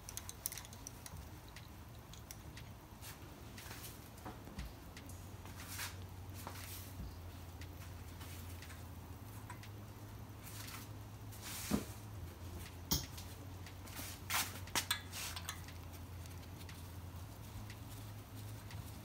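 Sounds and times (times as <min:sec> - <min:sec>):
steady low hum: 0:00.0 - 0:19.0
metal tools clinking: 0:14.8 - 0:15.8.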